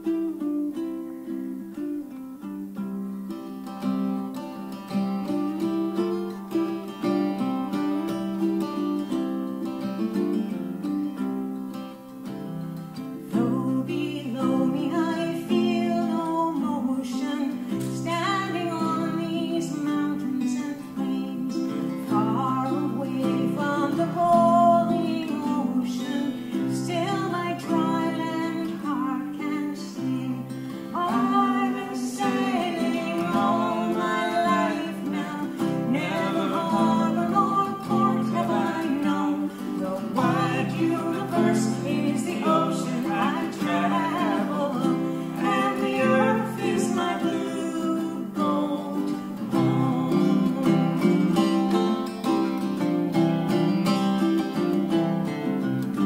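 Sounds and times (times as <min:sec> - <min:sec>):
acoustic guitar: 0:00.0 - 0:56.0
ukulele: 0:00.0 - 0:56.0
woman singing: 0:13.0 - 0:52.8.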